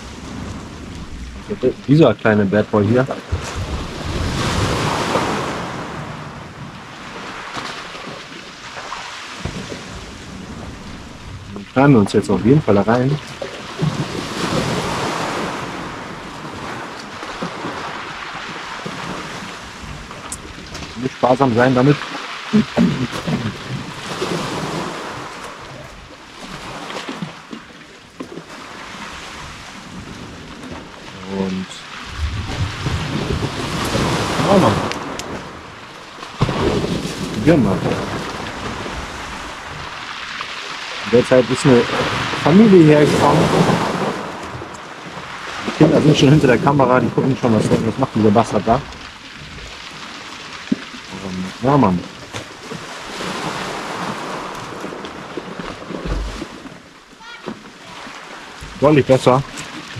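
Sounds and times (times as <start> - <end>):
wind buffeting the microphone: 0.0 - 7.5, 9.4 - 26.8, 29.2 - 40.1, 41.0 - 49.8
sea surf washing in: 0.0 - 59.9.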